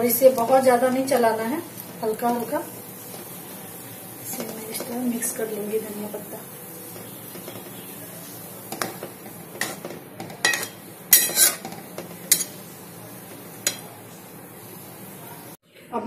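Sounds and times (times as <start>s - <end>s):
spatula scraping metal pan: 8.7s - 12.6s.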